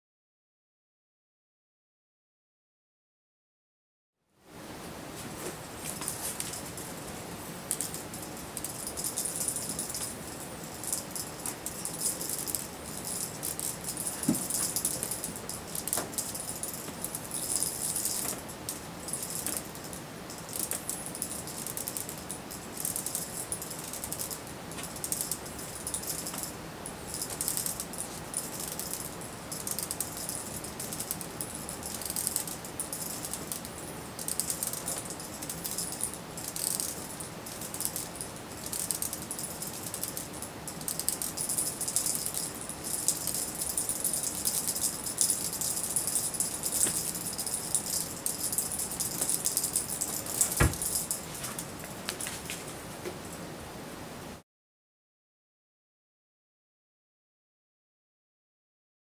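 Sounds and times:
cat toy rattling: 5.7s - 52.7s.

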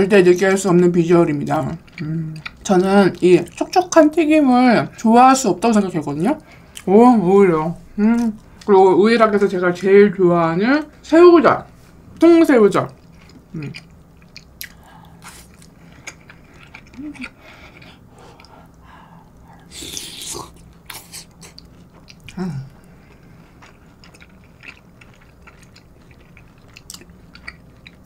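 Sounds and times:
wet chewing with mouth clicks: 1.4s - 4.0s, 12.8s - 28.0s.

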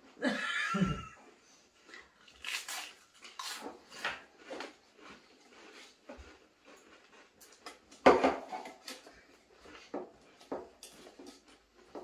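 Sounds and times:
crisps crunched in mouth: 2.2s - 7.6s.

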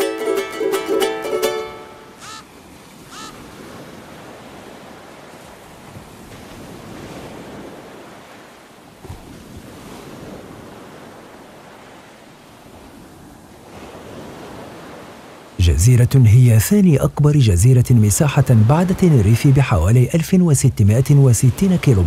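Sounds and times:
sea waves breaking: 0.0s - 22.0s
falling high chirps: 2.2s - 2.4s
wind noise on microphone: 9.0s - 11.6s.

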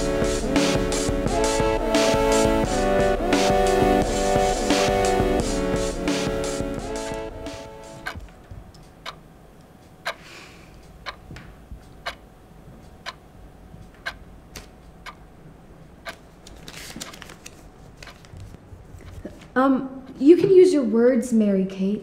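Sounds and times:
clock ticking: 7.9s - 9.2s, 10.0s - 10.2s, 10.8s - 11.2s, 11.8s - 12.2s, 12.9s - 13.2s, 13.9s - 14.2s
paper rustling: 16.4s - 19.5s.

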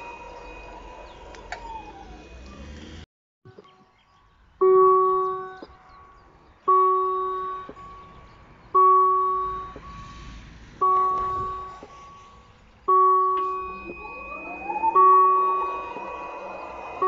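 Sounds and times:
level crossing bell dinging: 4.8s - 10.1s, 10.8s - 17.0s.

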